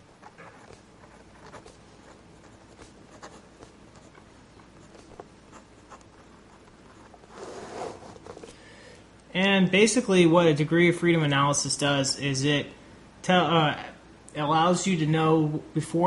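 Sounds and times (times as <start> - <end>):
pen scratching on paper: 0.1 - 8.4.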